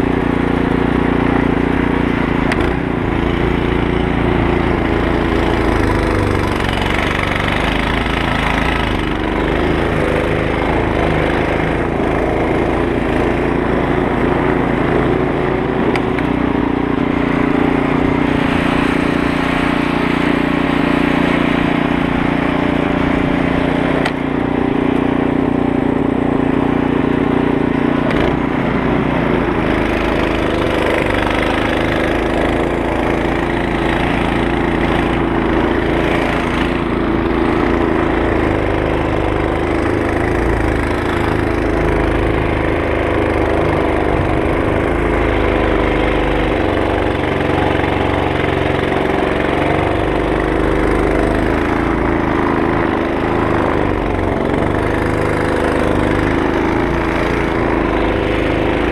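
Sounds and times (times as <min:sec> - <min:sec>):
snow blower engine running: 0:00.0 - 0:58.9.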